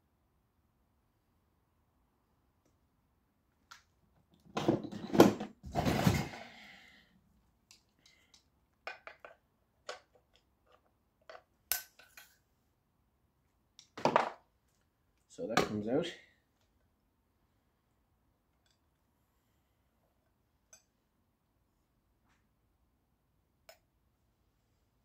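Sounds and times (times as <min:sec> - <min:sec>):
small clicks and knocks: 0:07.7 - 0:12.4.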